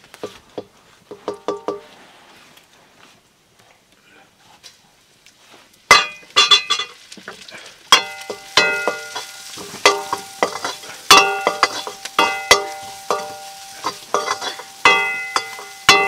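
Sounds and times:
food frying: 0:05.8 - 0:16.0
metal ladle scraping a wok: 0:08.1 - 0:16.0.

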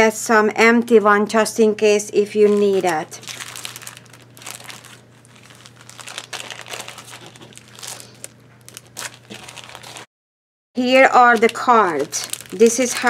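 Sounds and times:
plastic bags and paper crinkling: 0:02.4 - 0:10.1, 0:11.0 - 0:13.0.

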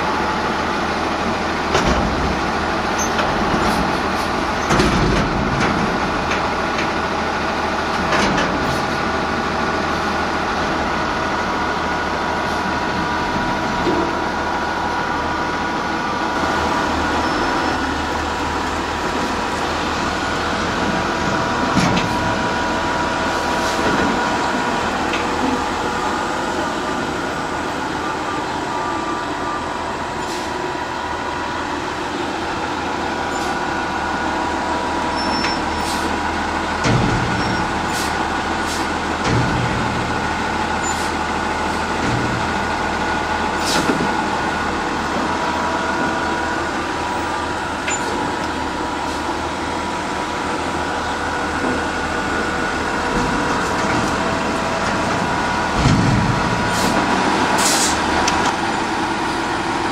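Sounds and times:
garbage truck engine running: 0:00.0 - 0:59.9
sharp clanks or hisses: 0:37.9 - 0:38.9, 0:43.6 - 0:44.0, 0:56.7 - 0:57.0, 0:57.6 - 0:58.0.

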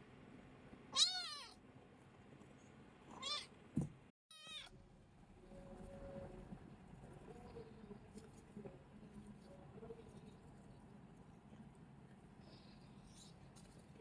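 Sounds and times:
kitten meowing: 0:01.0 - 0:01.6, 0:03.1 - 0:03.5, 0:04.3 - 0:04.7.

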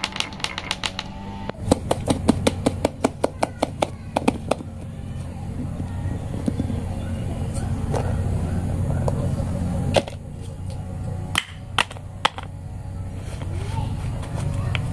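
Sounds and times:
marbles clacking on wooden track: 0:00.0 - 0:01.1
steady low hum: 0:00.0 - 0:14.9.

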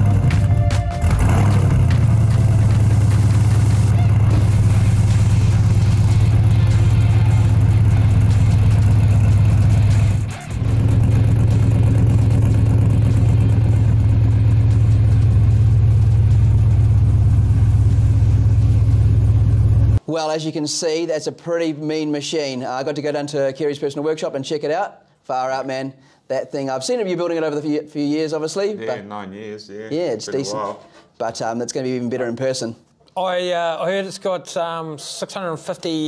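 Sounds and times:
truck engine idling: 0:00.0 - 0:20.0.

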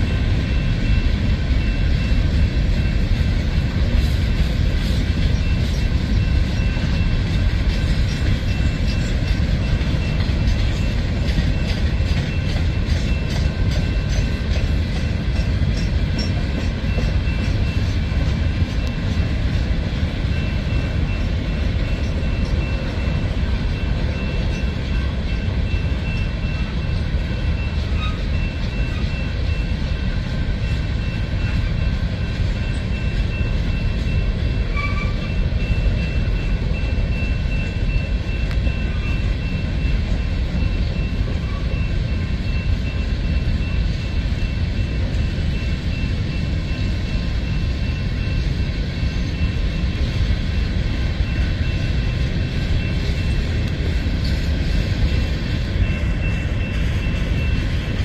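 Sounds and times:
freight train rumbling past: 0:00.0 - 0:58.0
wheels clicking over rail joints: 0:00.0 - 0:58.0.

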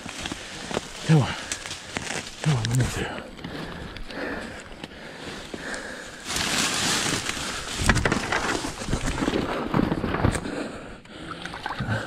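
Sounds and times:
clothing rustling against brush: 0:06.2 - 0:09.3.

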